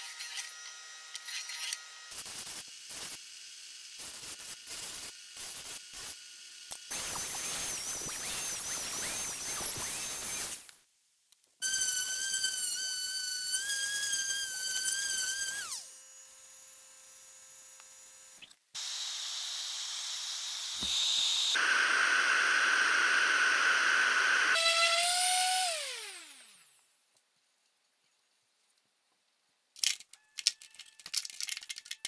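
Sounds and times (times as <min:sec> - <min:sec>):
orbital sander whining: 0:17.1 - 0:26.6
sander hissing against wood: 0:18.8 - 0:26.2.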